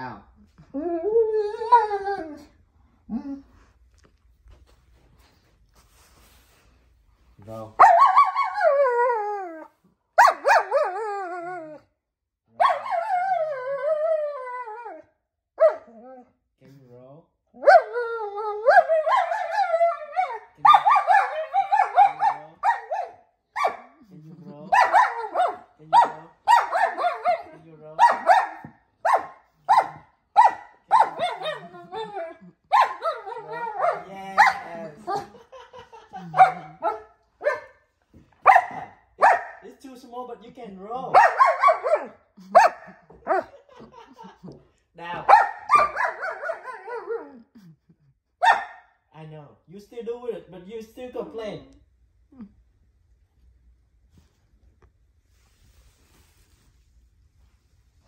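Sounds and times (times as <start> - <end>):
dog barking: 7.8 - 8.6, 10.2 - 10.8, 12.6 - 13.0, 15.6 - 15.9, 18.7 - 19.6, 20.2 - 24.0, 24.7 - 31.7, 32.7 - 35.4, 36.3 - 37.8, 38.4 - 39.6, 41.1 - 43.6, 45.2 - 47.2, 48.4 - 48.9
dog howling complaint: 7.8 - 11.8, 12.6 - 15.0, 17.6 - 23.2, 30.9 - 35.4.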